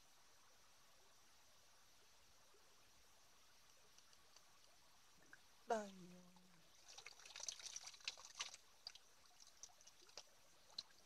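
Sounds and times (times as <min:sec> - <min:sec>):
water trickling and dripping: 0:02.2 - 0:11.0.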